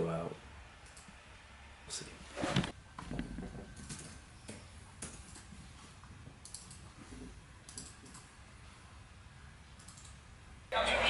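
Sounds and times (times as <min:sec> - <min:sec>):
low room hum: 0:00.0 - 0:11.0
laptop keyboard typing clicks: 0:06.4 - 0:06.9, 0:07.7 - 0:08.3, 0:09.8 - 0:10.2.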